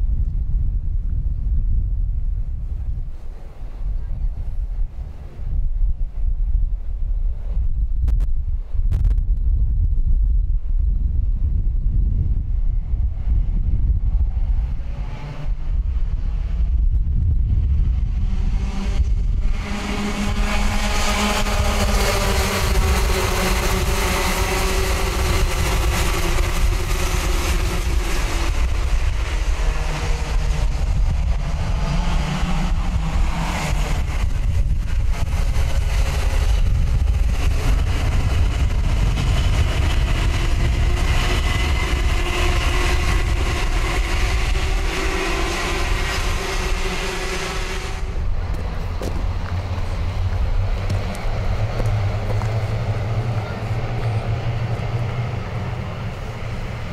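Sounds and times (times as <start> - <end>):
low rumble: 0.0 - 56.9
kart engines buzzing: 12.7 - 56.9.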